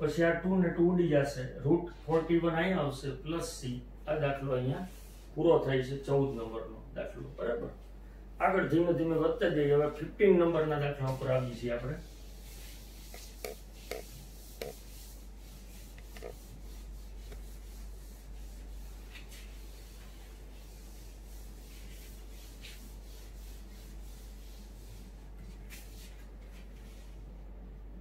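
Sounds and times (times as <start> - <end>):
eraser rubbing on whiteboard: 12.0 - 26.2.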